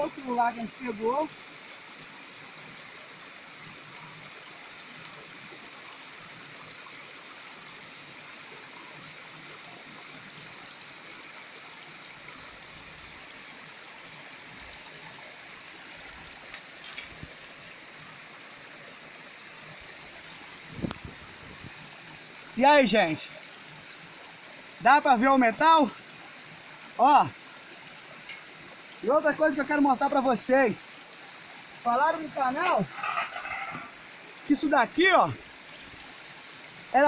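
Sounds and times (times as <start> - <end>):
stream running over rock: 0.0 - 37.0
water splashes from pan: 32.5 - 34.1.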